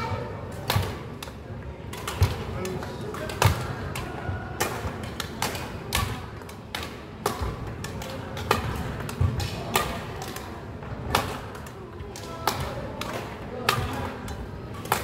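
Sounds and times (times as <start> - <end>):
rackets striking shuttlecocks: 0.0 - 15.0.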